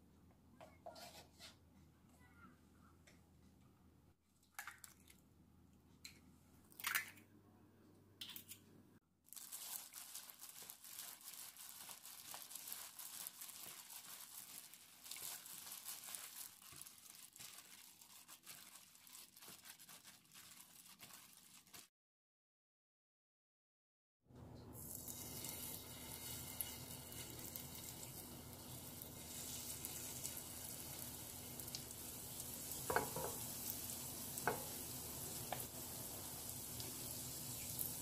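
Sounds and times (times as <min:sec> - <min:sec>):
gloved hand squishing wet mixture: 0:09.3 - 0:21.9.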